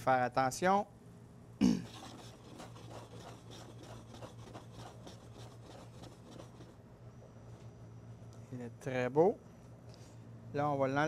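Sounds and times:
low steady hum: 0.0 - 11.0
spatula scraping a pan: 1.9 - 6.8.

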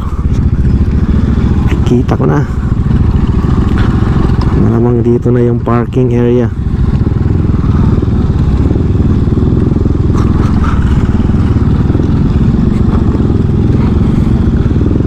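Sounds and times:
motorcycle engine running: 0.0 - 15.0
clatters and knocks: 2.8 - 4.6.

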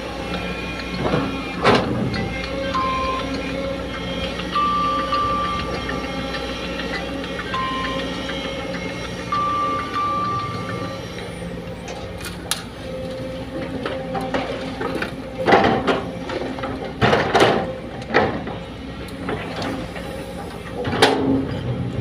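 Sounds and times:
excavator diesel engine running: 0.0 - 22.0.

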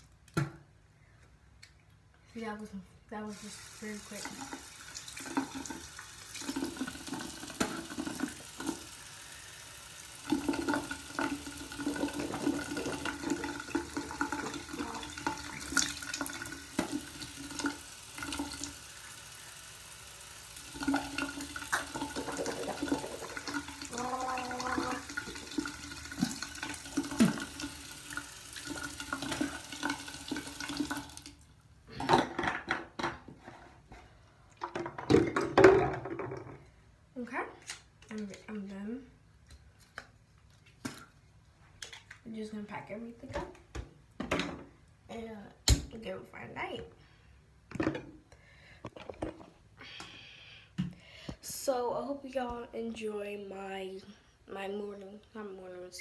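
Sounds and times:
tap water running into sink: 3.3 - 31.4.

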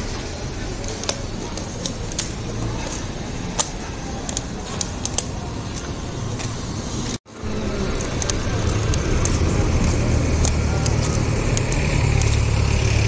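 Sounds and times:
crowd noise: 0.0 - 13.0
traffic: 0.0 - 13.0
sharp clicks: 7.9 - 13.0.

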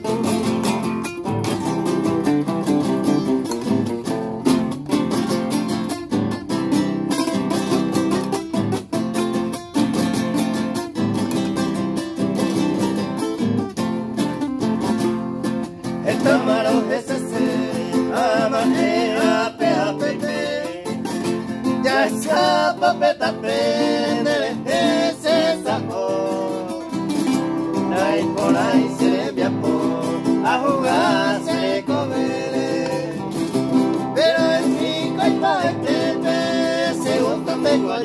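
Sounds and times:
acoustic guitars strummed: 0.0 - 38.0
man singing: 16.0 - 38.0.

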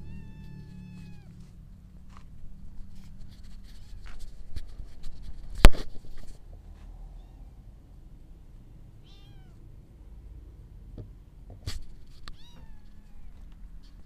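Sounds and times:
camera handling rustles: 2.9 - 6.4.

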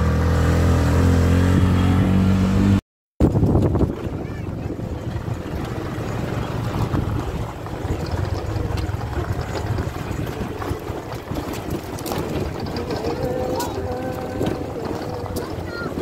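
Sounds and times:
motorcycle engine running: 0.0 - 16.0
wind rushing over microphone: 0.9 - 16.0
light rattling: 3.3 - 16.0.

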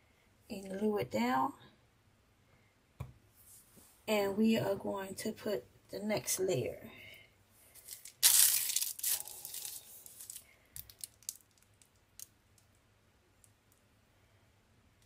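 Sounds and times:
plastic bag crinkling: 7.8 - 12.3.

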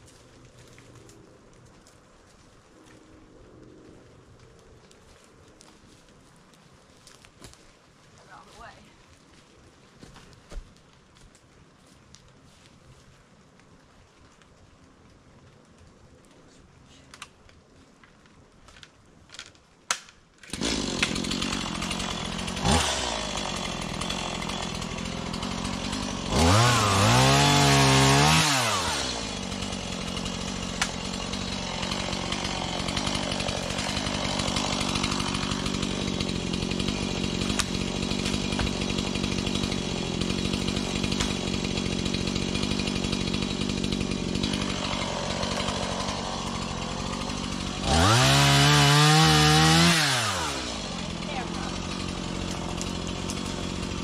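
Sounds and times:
chainsaw starting and revving: 20.4 - 54.0.

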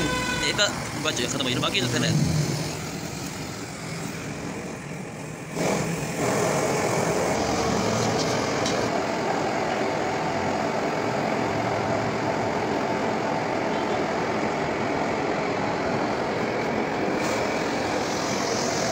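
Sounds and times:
machine-like whooshing noise: 1.7 - 12.7, 14.8 - 18.9.

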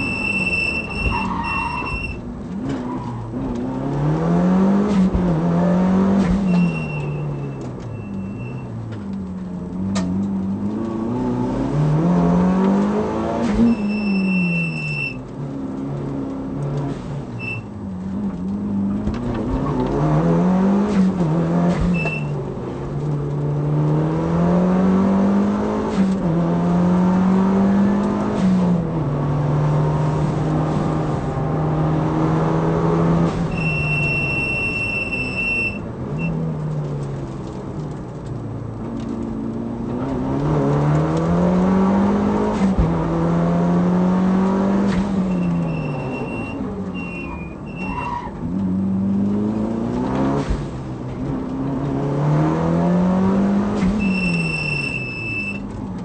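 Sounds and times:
car engine revving through gears: 0.0 - 56.0
high steady squeal: 33.5 - 35.8, 54.0 - 55.6.

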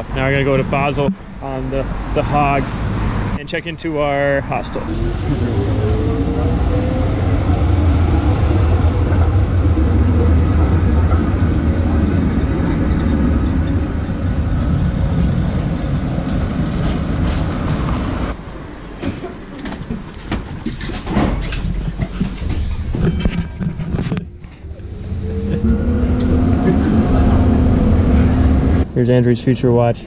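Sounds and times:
tram rumbling on rails: 0.0 - 3.4, 4.4 - 30.0
rattles and clicks inside tram: 5.1 - 28.8.

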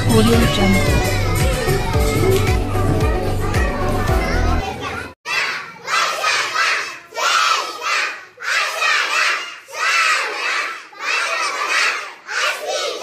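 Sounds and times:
children chanting in unison: 5.3 - 13.0.

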